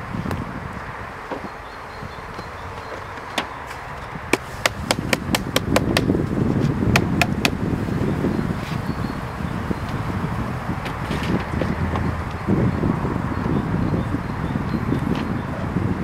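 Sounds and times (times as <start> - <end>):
hive tool tapping wood: 1.3 - 1.6, 2.3 - 6.2, 6.9 - 7.6.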